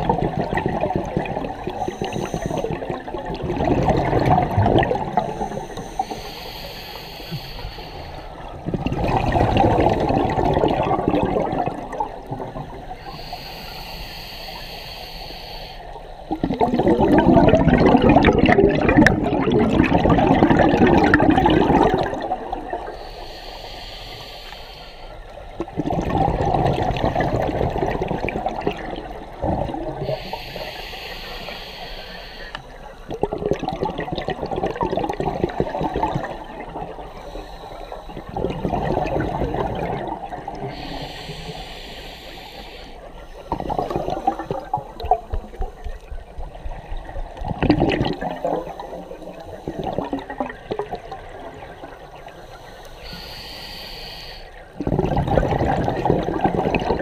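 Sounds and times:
exhaled bubbles rushing: 0.0s - 5.6s, 8.5s - 12.9s, 16.3s - 23.0s, 25.6s - 30.2s, 33.1s - 37.1s, 38.0s - 40.9s, 43.4s - 52.2s, 54.7s - 57.0s
diver inhaling through regulator: 1.7s - 3.0s, 5.0s - 10.2s, 12.9s - 17.4s, 20.6s - 25.4s, 29.0s - 33.1s, 35.4s - 46.0s, 51.8s - 54.8s.

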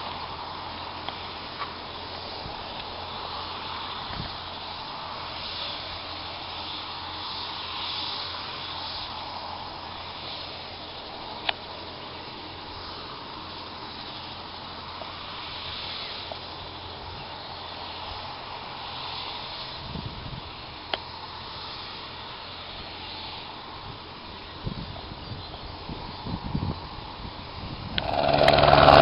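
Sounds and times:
helicopter engine running: 27.9s - 29.0s.

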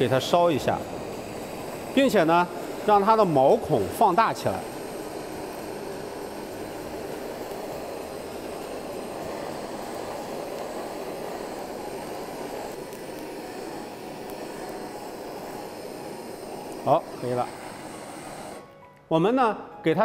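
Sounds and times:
blowtorch flame hissing: 0.0s - 18.7s.

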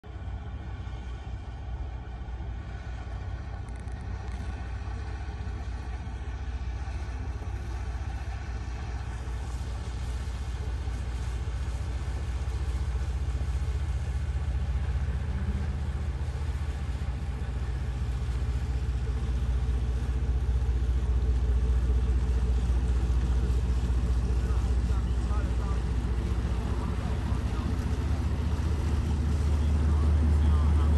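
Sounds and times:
boat engine rumbling: 0.0s - 30.9s.

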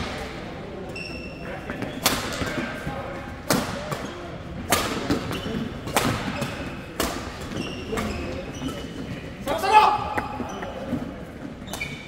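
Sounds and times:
racket hitting shuttlecock: 3.5s - 8.2s.

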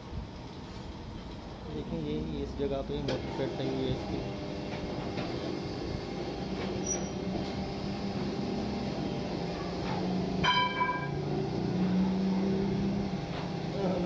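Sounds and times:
metal lathe humming: 3.1s - 14.0s
ringing metallic clang: 10.4s - 11.2s.

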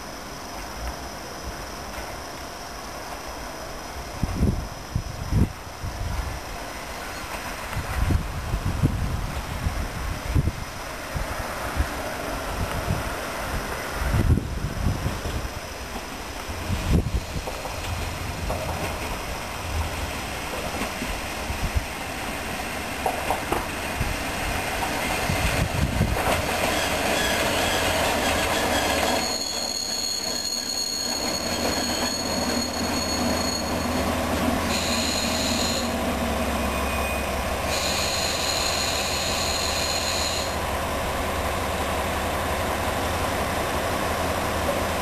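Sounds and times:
brakes squealing: 26.7s - 40.7s.

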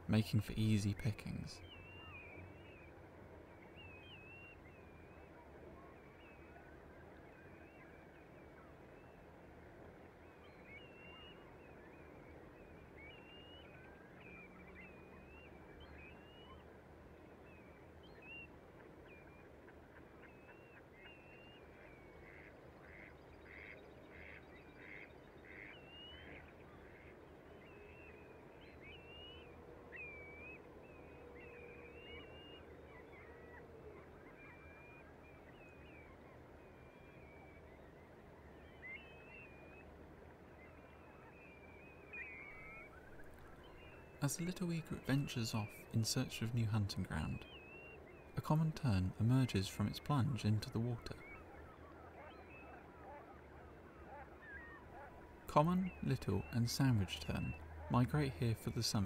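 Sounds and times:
waterbirds whistled chirps: 1.3s - 59.0s
birds honking and quacking: 40.8s - 59.0s.

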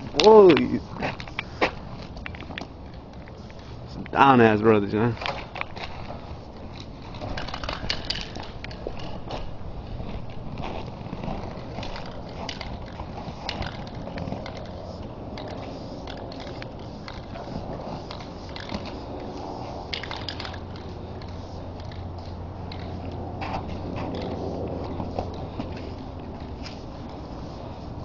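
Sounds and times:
spray paint cans hissing: 0.0s - 28.0s
footsteps crunching in snow: 8.8s - 13.4s.

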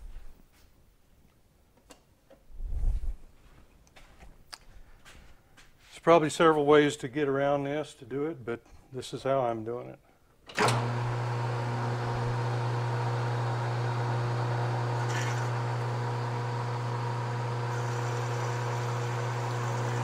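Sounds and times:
metal lathe humming: 10.6s - 20.0s.

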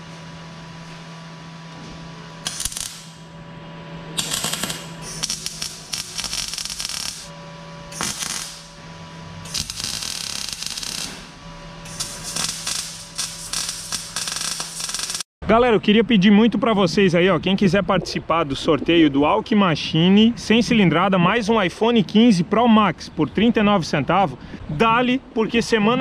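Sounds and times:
steady low hum: 0.0s - 26.0s
crackling welding arc: 2.4s - 3.3s, 4.2s - 7.3s, 7.9s - 8.8s, 9.4s - 15.3s.

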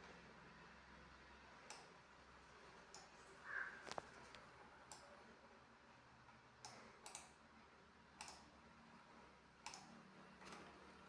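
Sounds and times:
faint clicks: 6.6s - 7.3s, 8.2s - 8.5s, 9.6s - 9.9s.

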